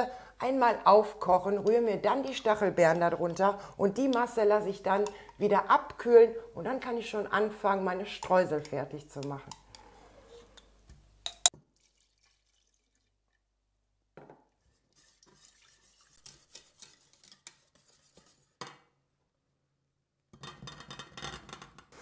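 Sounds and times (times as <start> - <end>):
whisk tapping and stirring in pot: 1.3 - 6.0, 7.8 - 9.9, 14.6 - 18.6.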